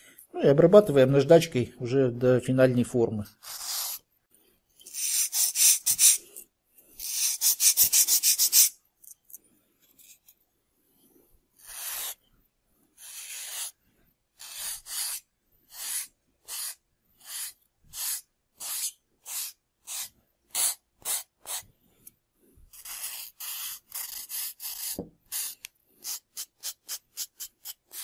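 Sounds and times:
sandpaper rubbing: 0:03.4 - 0:04.0, 0:04.9 - 0:06.2, 0:07.0 - 0:08.8, 0:11.6 - 0:12.2, 0:13.0 - 0:13.8, 0:14.4 - 0:21.6, 0:22.7 - 0:28.0.

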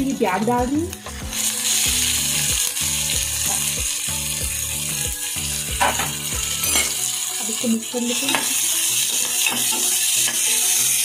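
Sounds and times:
onions sizzling in hot oil: 0:00.0 - 0:11.0.

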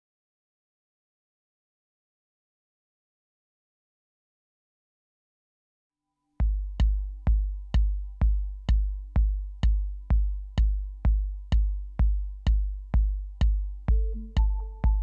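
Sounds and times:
drum machine kick drum beat: 0:06.4 - 0:15.0.

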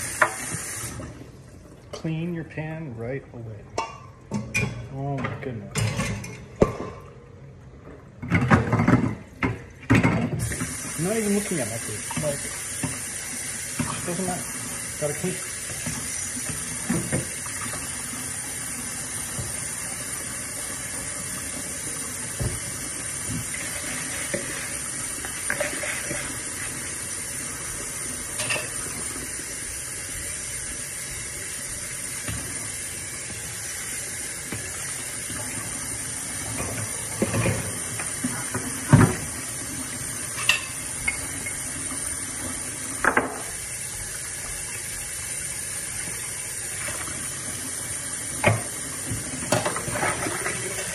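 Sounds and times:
water running into sink: 0:00.0 - 0:02.0, 0:08.2 - 0:50.9
pan and dishes clanking: 0:03.8 - 0:07.1, 0:08.2 - 0:10.7, 0:23.4 - 0:26.7, 0:28.3 - 0:29.1, 0:36.5 - 0:39.3, 0:40.3 - 0:41.7, 0:48.4 - 0:50.9.

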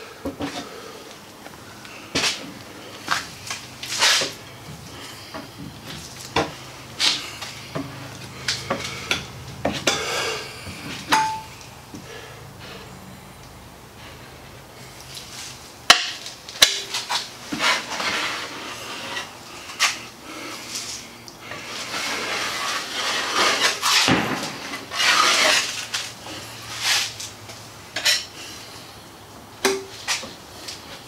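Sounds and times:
plastic spreader scraping: 0:16.9 - 0:20.0, 0:21.6 - 0:27.3.

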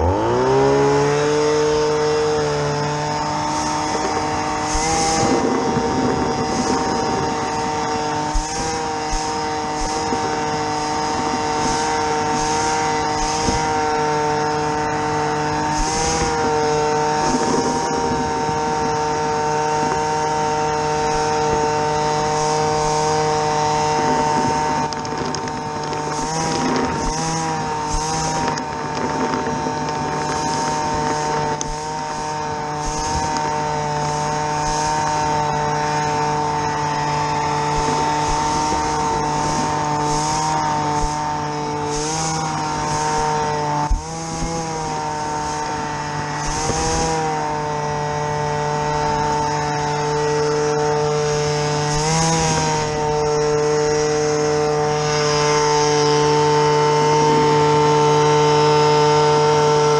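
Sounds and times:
small petrol engine running: 0:00.0 - 0:59.9
short bursts of hiss: 0:03.2 - 0:17.9, 0:37.3 - 0:47.1.

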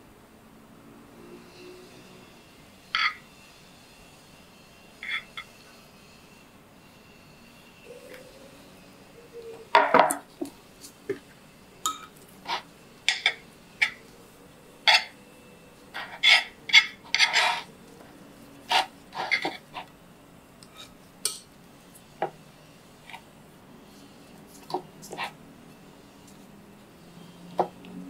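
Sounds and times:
plate scraping: 0:03.0 - 0:03.2, 0:05.0 - 0:05.8, 0:11.9 - 0:14.0, 0:14.8 - 0:15.2, 0:15.9 - 0:17.8, 0:18.6 - 0:19.9.

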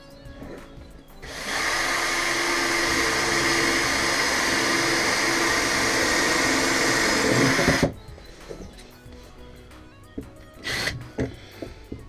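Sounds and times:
cordless drill boring through metal: 0:01.2 - 0:08.0, 0:10.6 - 0:11.4.

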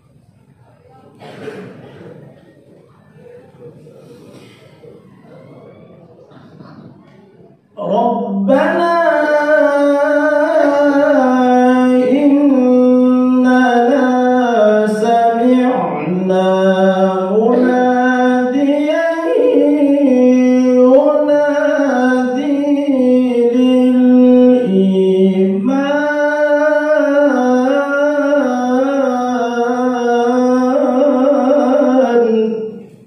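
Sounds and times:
man chanting melodically: 0:07.8 - 0:33.0.

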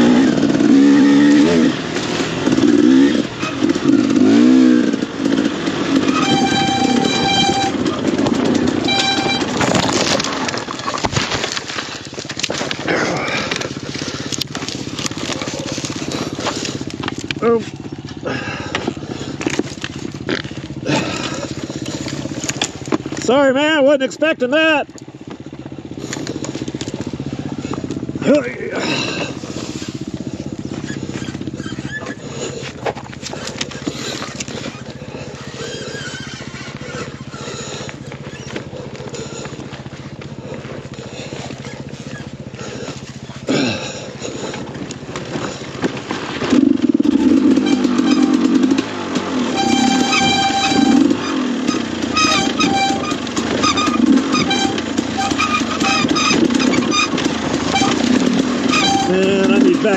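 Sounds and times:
dirt bike engine idling: 0:00.0 - 0:59.9
knocks and rattles of bike: 0:00.0 - 0:59.9.

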